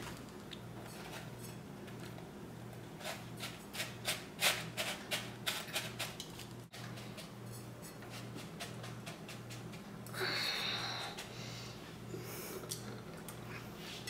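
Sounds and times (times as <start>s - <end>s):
steady low hum: 6.6s - 14.0s.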